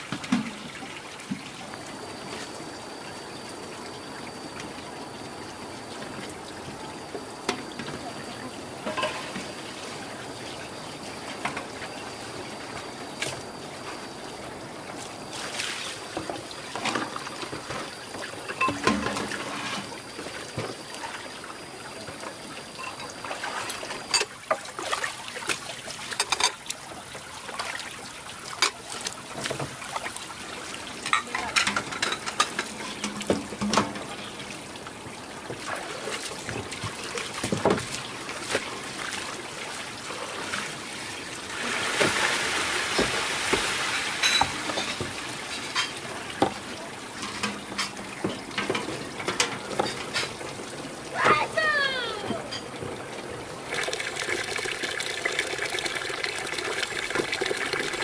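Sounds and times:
rush of water: 0.0 - 58.0
water trickling and splashing: 0.0 - 58.0
knocks and clinks of objects: 8.8 - 9.5, 16.8 - 19.9, 22.7 - 23.2, 26.2 - 26.6, 31.0 - 34.1, 44.2 - 46.6, 47.2 - 50.4.

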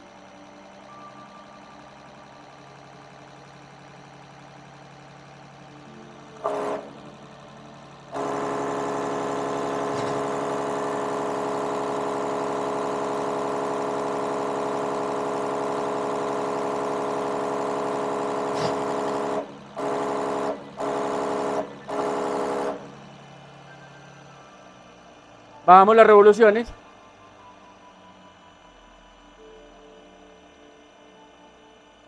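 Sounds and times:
injection pump test bench humming: 0.0 - 32.0.

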